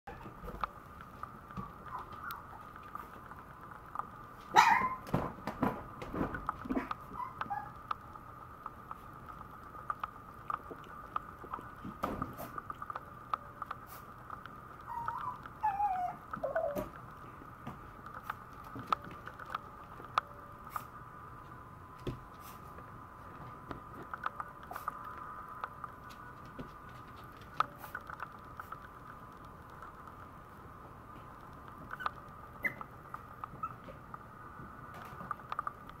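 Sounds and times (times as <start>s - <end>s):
small clicks and taps on floor: 0.1s - 30.3s
puppy whining: 1.8s - 3.0s, 4.6s - 5.1s, 6.8s - 7.9s, 14.8s - 17.0s, 31.9s - 32.9s, 33.5s - 34.0s.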